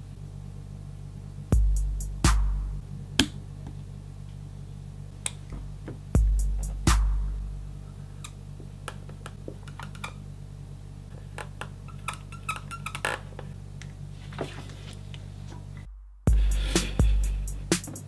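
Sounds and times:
heavy thumps: 5.4 - 7.6
marker squeaking on plastic: 11.2 - 13.5.

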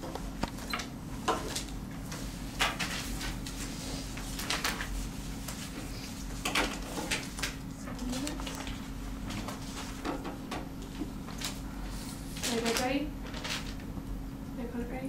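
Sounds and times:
low electrical hum: 0.0 - 15.0
papers rustling: 2.6 - 10.2, 10.8 - 13.9
objects clattering on a desk: 6.4 - 7.6, 8.4 - 11.6.

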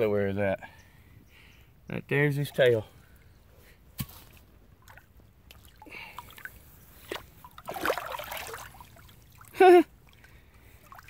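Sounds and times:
pond water sloshing and trickling: 2.3 - 11.0.

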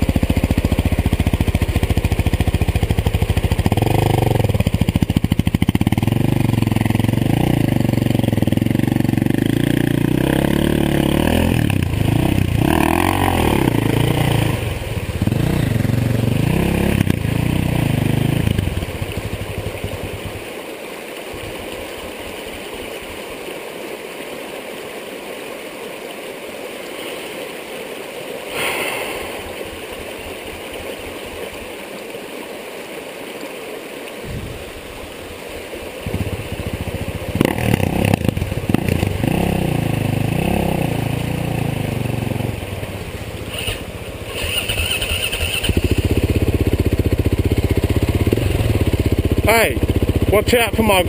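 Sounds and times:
dirt bike engine revving: 0.0 - 20.4, 36.0 - 51.0
floodwater rushing: 0.0 - 51.0.

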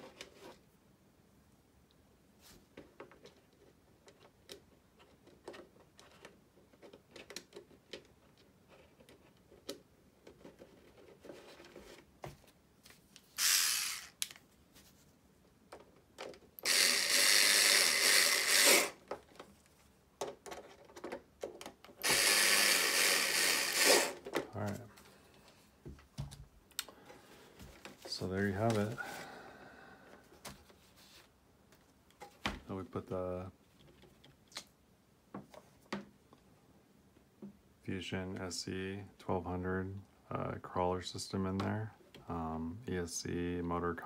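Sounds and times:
small power tool running: 13.4 - 14.2, 16.6 - 19.0, 22.0 - 24.2.

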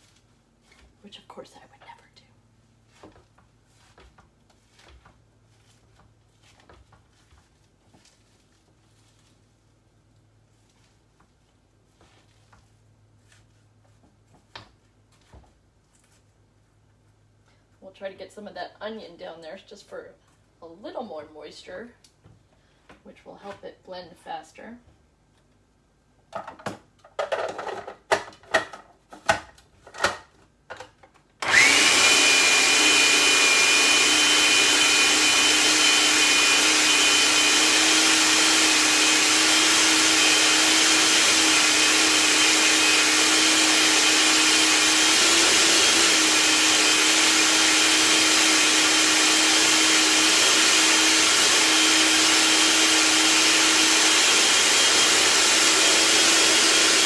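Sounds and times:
food processor whining: 31.4 - 57.0.

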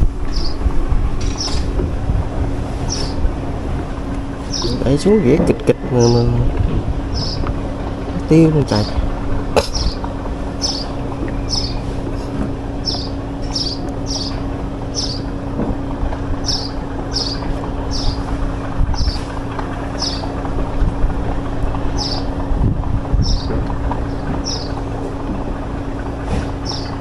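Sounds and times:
engine hum: 0.0 - 27.0
wind noise on microphone: 0.0 - 27.0
bird chirping: 0.3 - 1.7, 2.9 - 3.2, 4.4 - 6.4, 7.1 - 7.5, 8.4 - 15.4, 16.4 - 18.4, 19.0 - 20.4, 21.9 - 22.4, 23.2 - 24.9, 26.6 - 27.0.

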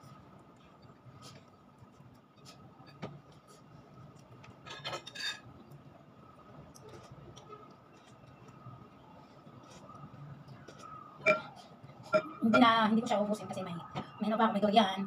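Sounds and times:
cutlery scraping and clinking on plate: 4.6 - 5.5.

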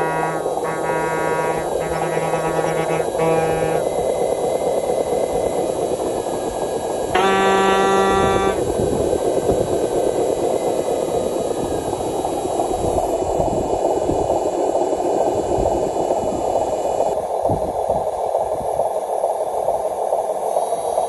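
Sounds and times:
horn: 0.0 - 3.9, 7.2 - 8.6
model truck motor humming: 0.0 - 8.8.

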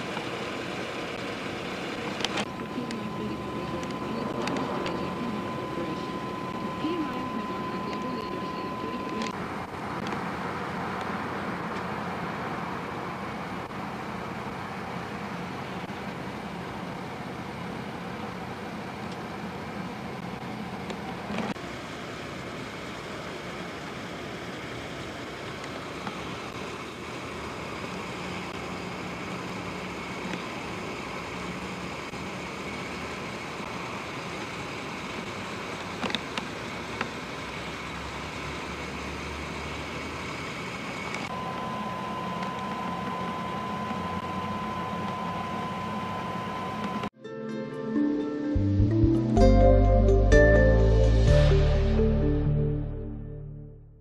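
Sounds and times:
car engine hum: 0.0 - 47.2
road noise: 0.0 - 47.2
tape hiss: 0.1 - 10.3
steady high tone: 2.5 - 9.4, 41.3 - 53.8.

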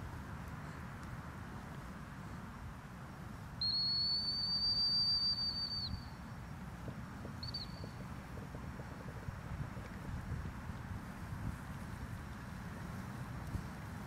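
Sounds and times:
dog whistle high blast: 3.6 - 6.0.

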